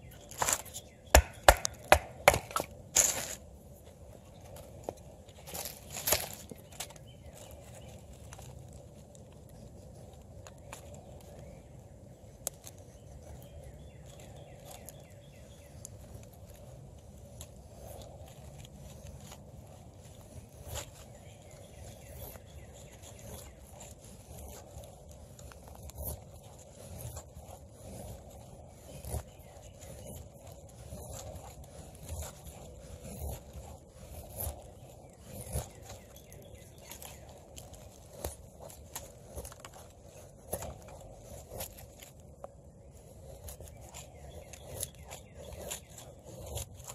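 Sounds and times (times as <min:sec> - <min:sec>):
knife scraping wood: 0:00.0 - 0:03.4, 0:17.2 - 0:46.9.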